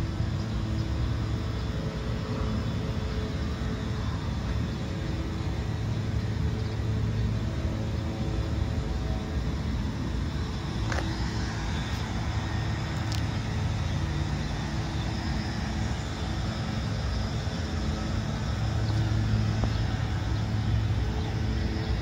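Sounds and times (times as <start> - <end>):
city traffic rumble: 0.0 - 22.0
low engine hum: 0.0 - 22.0.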